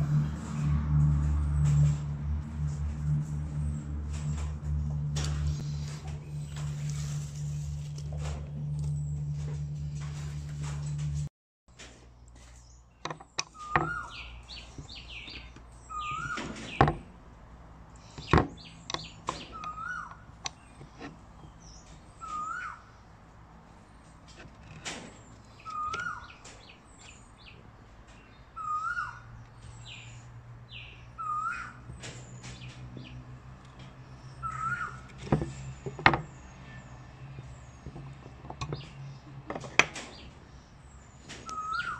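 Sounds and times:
steady low hum: 0.0s - 11.3s
birds calling: 11.8s - 17.2s, 17.9s - 41.9s
bird whistle rising and falling: 22.2s - 22.8s, 28.6s - 29.2s, 31.2s - 31.8s, 41.5s - 41.9s.

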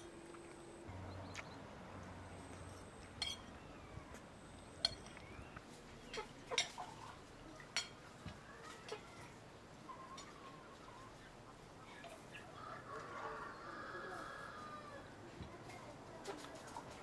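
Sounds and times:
spoons plates and cups clinking: 2.6s - 3.5s, 4.8s - 5.2s, 7.7s - 8.0s.

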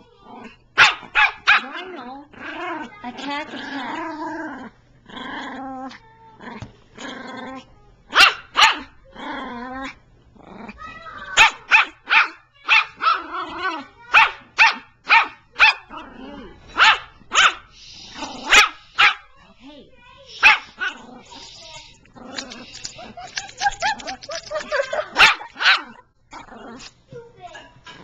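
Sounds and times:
small dog barking: 0.8s - 1.8s, 8.1s - 8.9s, 11.4s - 13.3s, 14.1s - 15.9s, 16.8s - 17.7s, 18.4s - 19.3s, 20.4s - 21.1s, 24.7s - 26.0s
small dog growling: 1.6s - 7.7s, 9.1s - 10.9s, 15.9s - 16.7s, 18.0s - 18.7s, 20.6s - 25.2s, 25.8s - 27.0s.

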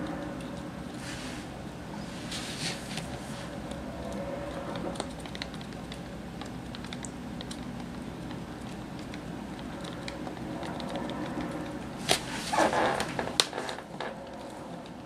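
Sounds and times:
steady low hum: 0.0s - 15.0s
claws ticking on hardwood floor: 3.7s - 11.9s.

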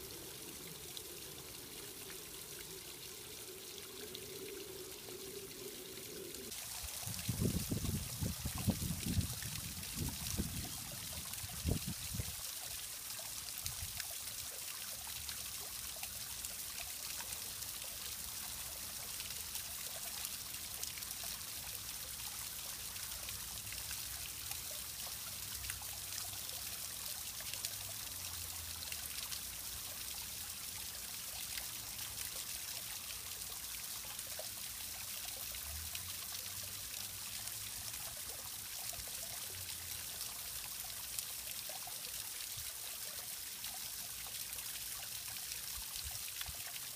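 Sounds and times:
small waterfall trickling and splashing: 0.0s - 46.9s.

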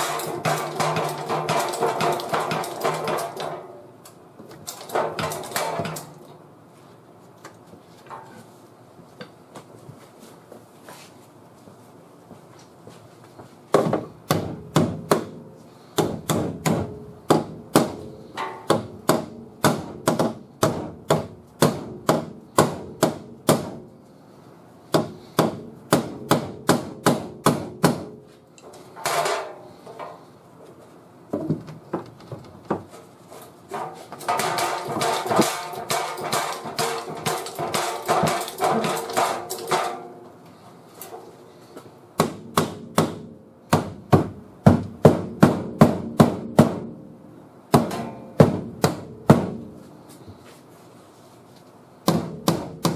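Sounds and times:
hammer striking steel panels: 0.0s - 3.8s, 4.6s - 6.2s, 13.8s - 23.9s, 24.9s - 28.3s, 28.9s - 30.3s, 33.7s - 40.3s, 42.2s - 47.0s, 47.7s - 49.8s, 52.0s - 52.9s.

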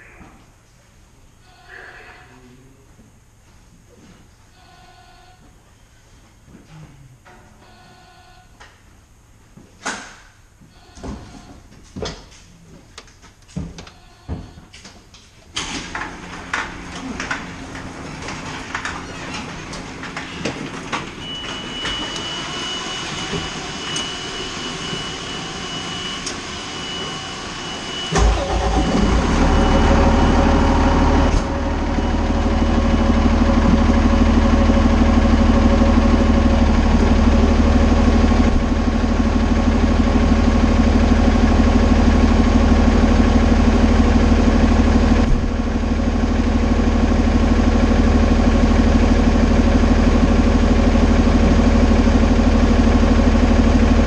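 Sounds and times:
diesel engine cranking and idling: 15.6s - 54.0s.

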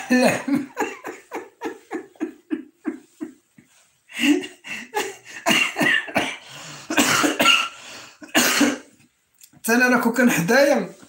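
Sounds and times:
man coughing: 0.0s - 1.0s, 5.0s - 8.9s
man laughing: 0.0s - 6.0s.

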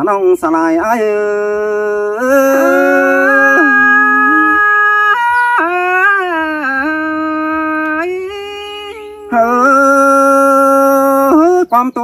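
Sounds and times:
person singing long notes: 1.3s - 11.7s.

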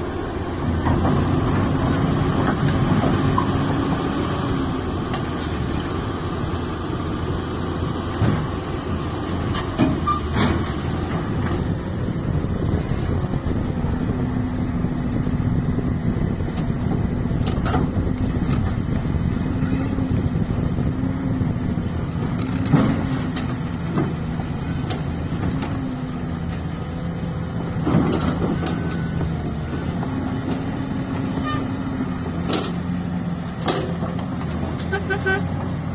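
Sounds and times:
excavator diesel engine running: 0.0s - 35.9s
track clanking: 0.4s - 5.7s, 27.6s - 35.9s.

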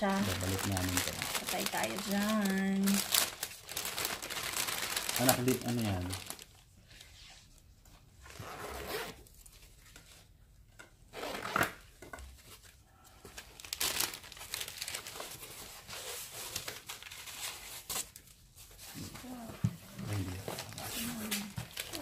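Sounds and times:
plastic packaging crinkling: 0.0s - 6.6s, 13.3s - 18.4s, 20.0s - 22.0s.

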